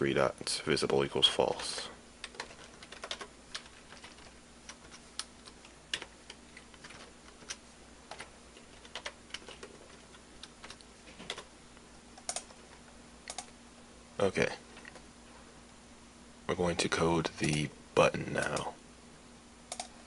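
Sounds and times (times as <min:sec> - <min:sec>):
faint steady hum: 0:00.0 - 0:20.0
computer keyboard typing: 0:01.5 - 0:11.5, 0:12.2 - 0:12.6, 0:13.2 - 0:13.5, 0:19.7 - 0:19.9.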